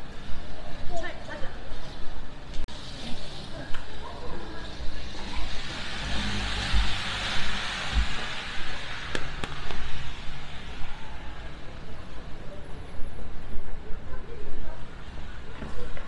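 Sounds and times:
tyre hiss on wet road: 2.7 - 4.0, 4.7 - 12.3.

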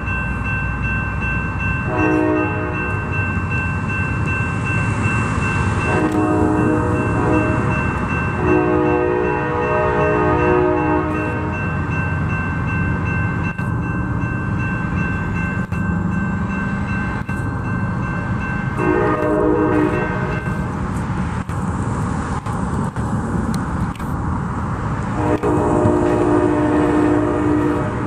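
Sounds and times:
passing train rumble: 0.0 - 28.0
train horn blast: 1.9 - 3.0, 5.9 - 7.8, 8.4 - 11.6, 18.8 - 20.5, 25.1 - 28.0.

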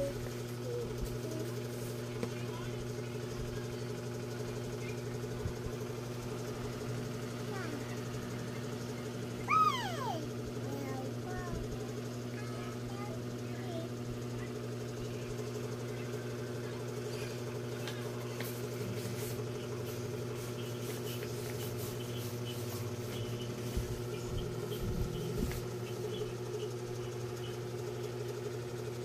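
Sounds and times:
low mechanical hum: 0.0 - 29.0
paper and crayons rustling: 17.8 - 24.0.

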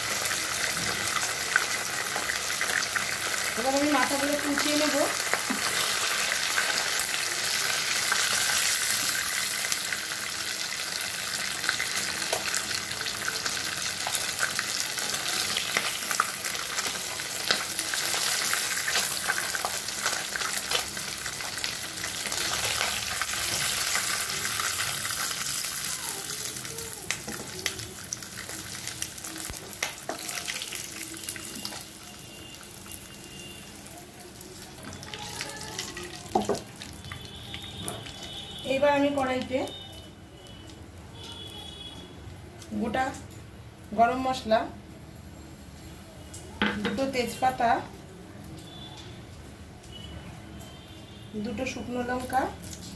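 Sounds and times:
fish sizzling in hot oil: 0.0 - 41.9.

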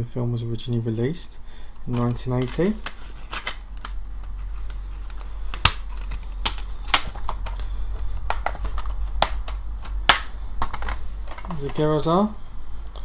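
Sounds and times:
steady low hum: 0.0 - 13.0
plastic cases clicking and snapping: 1.8 - 11.8.

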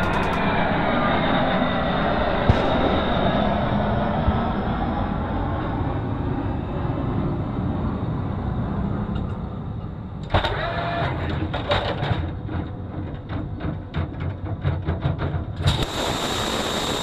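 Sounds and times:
irregular mechanical knocks: 0.0 - 0.5
steady low rumble: 0.0 - 10.3
brief mechanical whine: 15.7 - 17.0.

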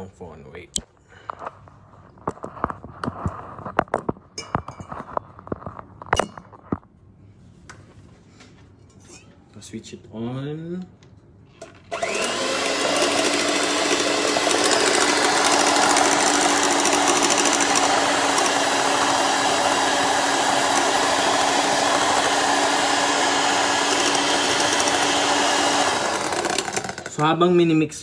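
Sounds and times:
electric hand mixer whisking: 11.9 - 27.6.

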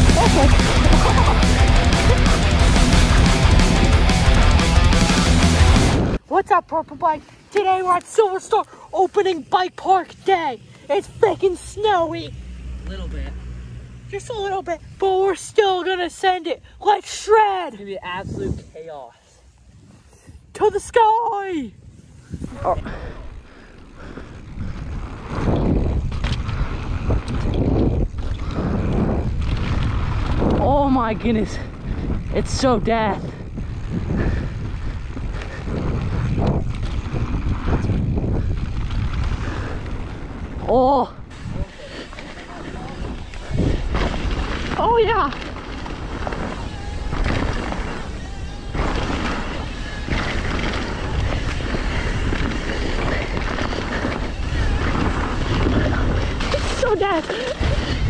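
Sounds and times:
bike tyres and frame rumbling: 0.0 - 58.0
wind rushing over microphone: 18.0 - 18.9, 21.7 - 58.0.

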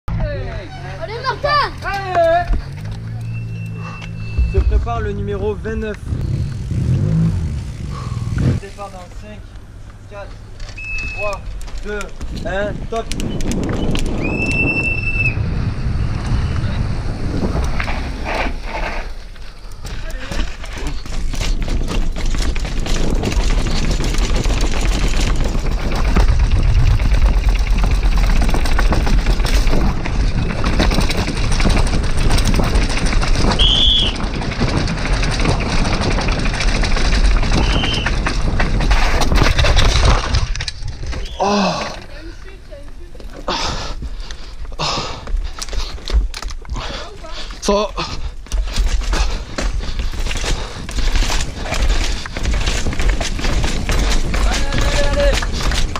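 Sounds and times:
tyres rumbling on asphalt: 0.1 - 55.9
high squeals: 3.1 - 5.4
high steady squeal: 3.2 - 8.1
wind buffeting microphone: 4.2 - 8.7, 11.2 - 18.8, 19.7 - 43.0
mountain bike clattering down steps: 17.6 - 55.9.

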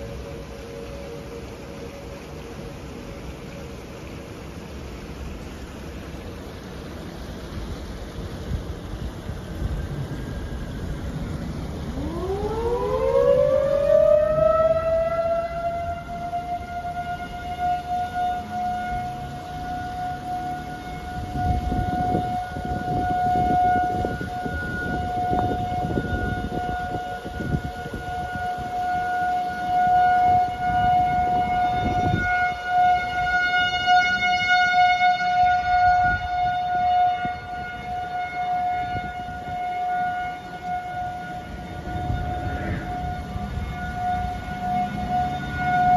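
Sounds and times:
warning siren wailing: 0.0 - 45.9
wind gusts on microphone: 19.9 - 45.9.

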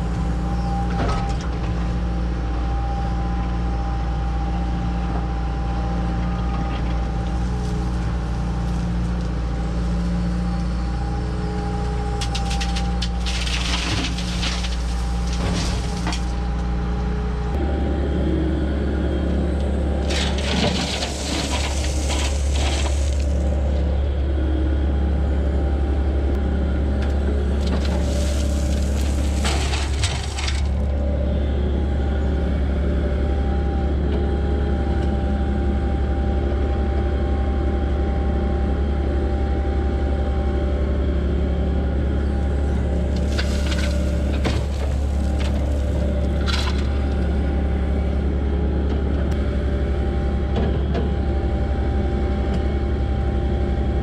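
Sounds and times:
diesel engine droning: 0.0 - 54.0
rock pouring and grinding: 12.3 - 16.5, 20.0 - 23.7, 27.6 - 30.8, 43.0 - 47.0.

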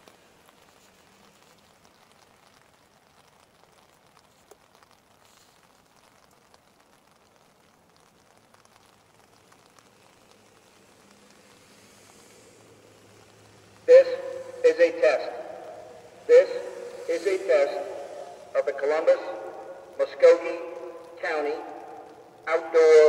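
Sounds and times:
light rain patter: 0.0 - 23.0
passing vehicle hum: 10.4 - 18.6.

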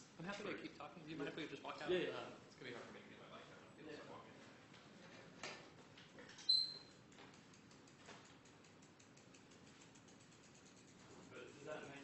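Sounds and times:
sharp high squeak: 6.4 - 6.9.

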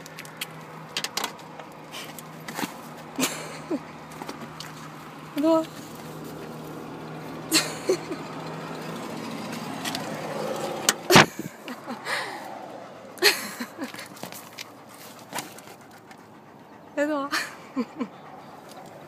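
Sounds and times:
car engine humming: 0.0 - 19.0.

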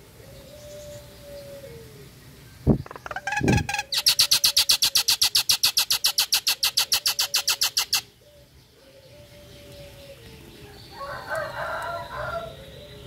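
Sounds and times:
myna rapid rattling call: 2.9 - 8.1.

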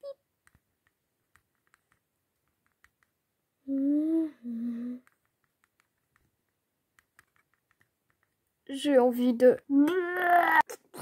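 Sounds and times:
person humming: 3.7 - 5.1.

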